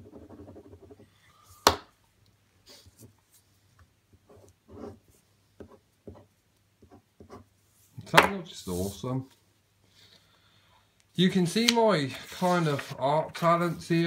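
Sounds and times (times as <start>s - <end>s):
pen scratching on paper: 0.0s - 1.0s, 4.3s - 5.0s.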